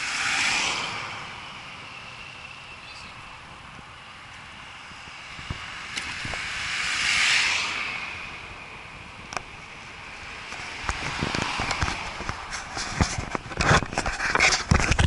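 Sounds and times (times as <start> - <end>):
car passing: 0.0 - 13.5
bicycle riding on road: 0.0 - 15.0
bike clicks and knocks: 10.4 - 15.0.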